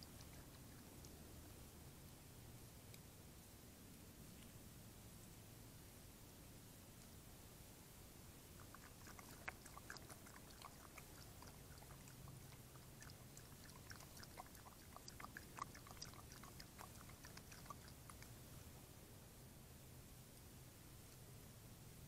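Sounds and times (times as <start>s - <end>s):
animal lapping water: 0.0s - 1.7s, 8.5s - 18.4s.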